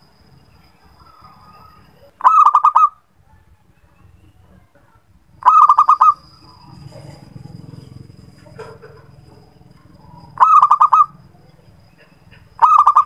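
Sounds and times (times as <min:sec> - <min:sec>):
dove cooing: 0:05.4 - 0:13.0.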